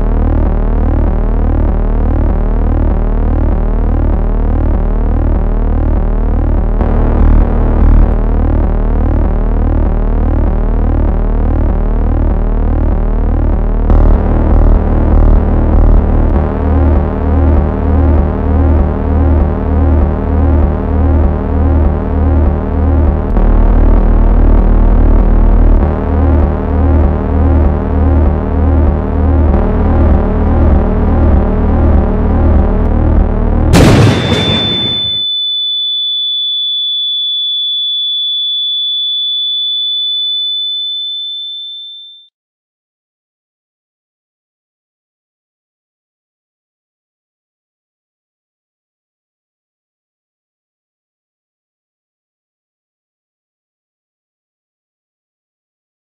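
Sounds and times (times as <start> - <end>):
low bass pulse: 0.0 - 35.2
sustained electronic tones: 0.0 - 41.6.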